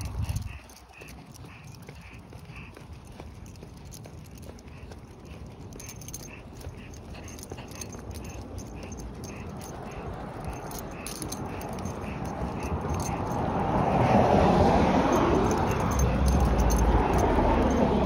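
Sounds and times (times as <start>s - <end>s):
light regular tapping: 0.0s - 14.1s.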